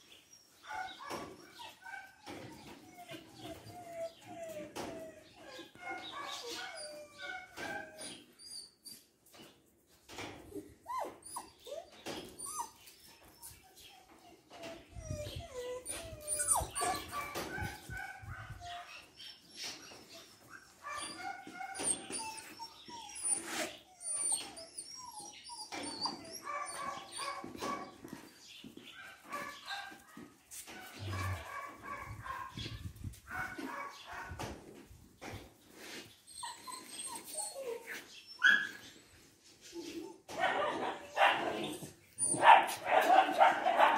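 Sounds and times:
dogs whimpering and yipping: 0:00.0 - 0:09.5, 0:10.2 - 0:28.5, 0:35.3 - 0:43.9
dogs barking: 0:16.5 - 0:18.9, 0:26.3 - 0:28.1, 0:28.9 - 0:34.5, 0:40.3 - 0:43.9.

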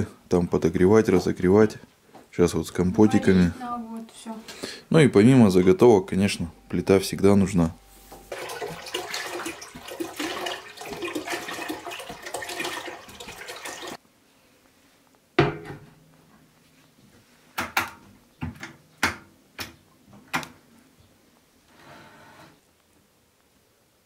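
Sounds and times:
water pouring into a steel pot: 0:08.3 - 0:14.0.

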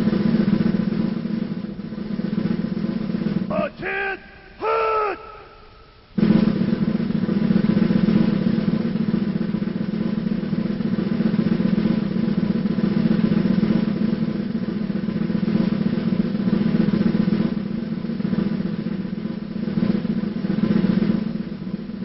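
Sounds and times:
snare drum roll: 0:06.2 - 0:09.6.

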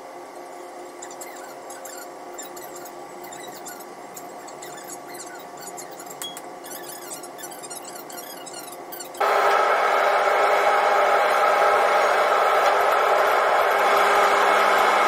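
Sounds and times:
ferry machinery hum: 0:09.1 - 0:15.0.

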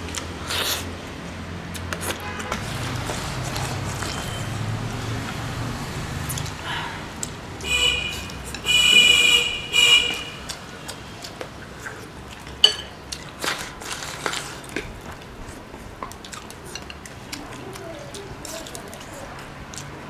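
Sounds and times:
quiet chewing: 0:00.0 - 0:00.9, 0:01.7 - 0:05.4, 0:06.2 - 0:07.4, 0:10.0 - 0:20.0
loud high-pitched slurps: 0:00.1 - 0:00.9
chopsticks clicking against bowls: 0:06.3 - 0:06.6, 0:08.1 - 0:08.7, 0:10.1 - 0:13.6, 0:16.0 - 0:20.0.

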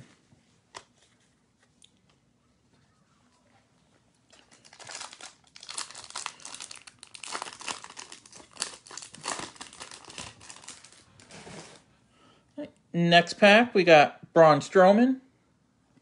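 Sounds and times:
foil wrapper tearing and crinkling: 0:04.4 - 0:11.2.

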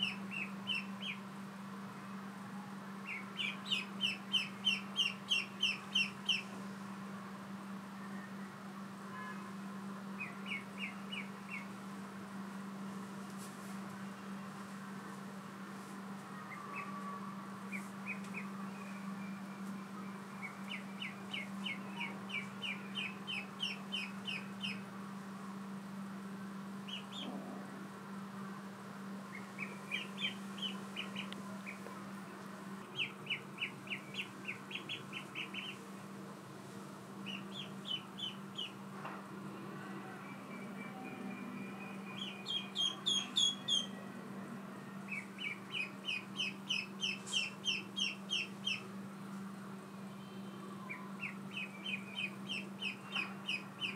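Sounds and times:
ducklings peeping: 0:00.0 - 0:01.2, 0:03.1 - 0:06.5, 0:10.2 - 0:11.8, 0:17.7 - 0:18.5, 0:20.4 - 0:24.9, 0:26.9 - 0:27.4, 0:29.3 - 0:31.8, 0:32.9 - 0:35.8, 0:37.2 - 0:38.8, 0:42.2 - 0:43.9, 0:45.1 - 0:48.8, 0:50.9 - 0:53.9
steady low hum: 0:00.0 - 0:53.9.

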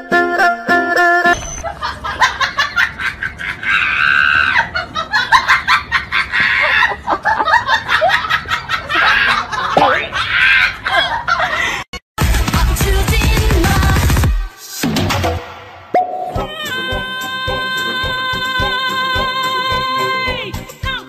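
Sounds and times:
people laughing and shrieking: 0:01.6 - 0:11.8.

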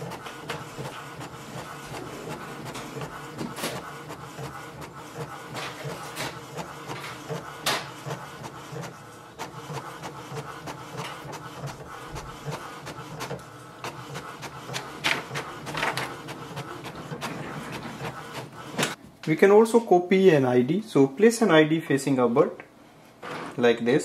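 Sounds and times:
inkjet printer printing: 0:00.0 - 0:19.0
sharp printer clicks: 0:00.0 - 0:19.0.

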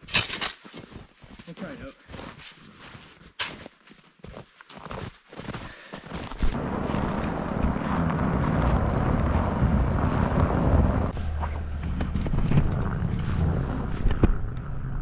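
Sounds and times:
tyres on snow: 0:00.0 - 0:14.8
truck engine running low: 0:06.6 - 0:15.0.

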